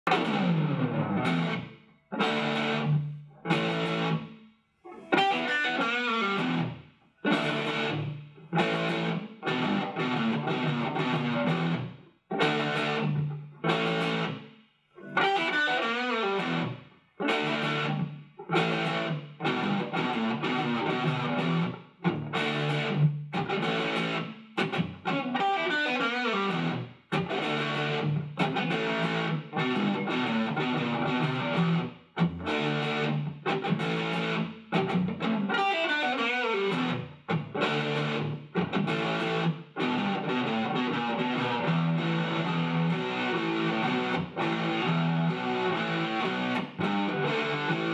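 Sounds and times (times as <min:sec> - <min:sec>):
electric guitar chords and riffs: 0:00.0 - 0:14.4, 0:15.0 - 0:47.9.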